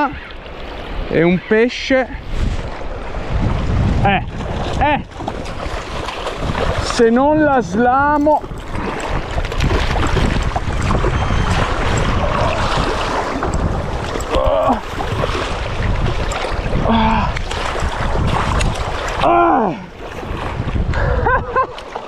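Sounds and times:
wind buffeting microphone: 0.0 - 22.0
fast-flowing river water: 2.7 - 20.9.

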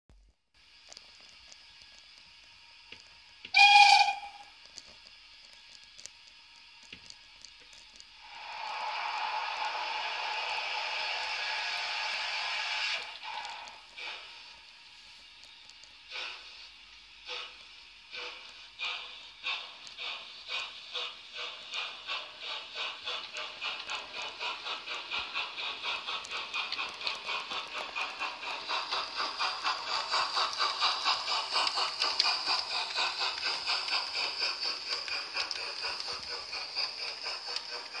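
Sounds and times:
steady steam hiss: 0.6 - 38.0
steam locomotive chuffs: 0.7 - 38.0.

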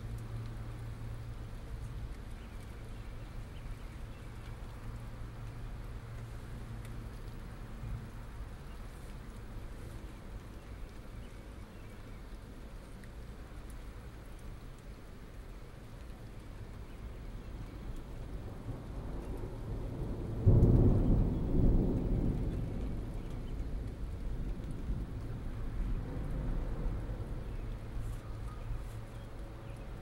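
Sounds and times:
rain falling: 0.0 - 30.0
thunder rumbling: 18.1 - 28.1.

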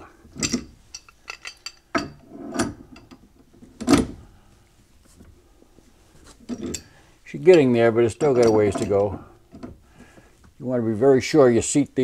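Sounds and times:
pipe wrench clinking on metal pipe: 0.4 - 3.2, 6.5 - 9.7.

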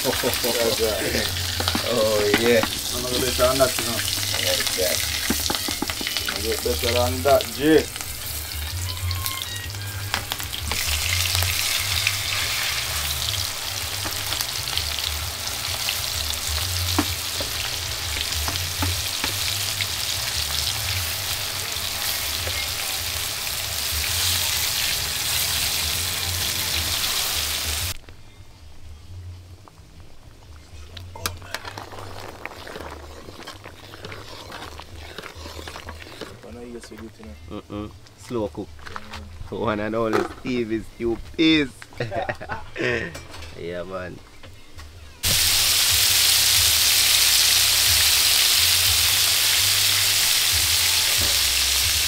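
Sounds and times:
stirring in a pot: 0.0 - 8.4, 30.6 - 37.3
food frying in hot oil: 0.0 - 28.0, 45.2 - 52.0.

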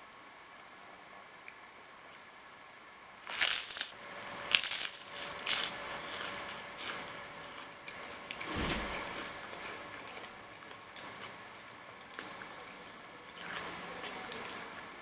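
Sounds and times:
rice cake crunching: 3.2 - 8.4, 9.1 - 14.6.

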